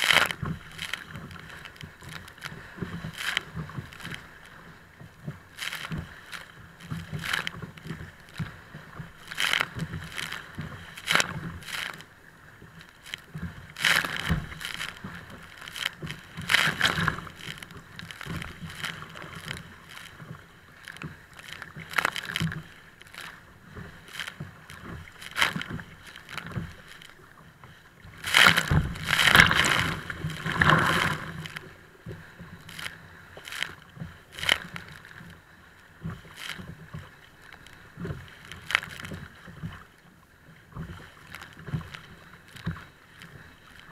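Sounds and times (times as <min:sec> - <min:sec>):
waves splashing against kayak: 0:00.0 - 0:43.9.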